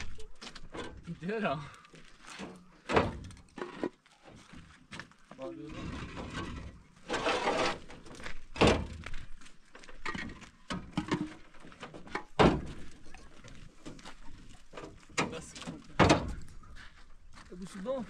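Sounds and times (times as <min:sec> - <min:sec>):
heavy thunks of concrete blocks: 0:02.4 - 0:04.0, 0:05.8 - 0:09.2, 0:09.9 - 0:13.0, 0:14.8 - 0:16.5
concrete block scraping: 0:05.6 - 0:08.4.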